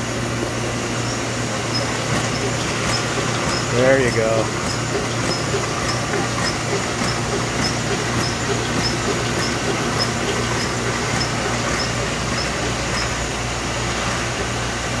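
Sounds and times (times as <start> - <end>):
machine hum: 0.0 - 15.0
short high mechanical ticks: 1.7 - 13.2.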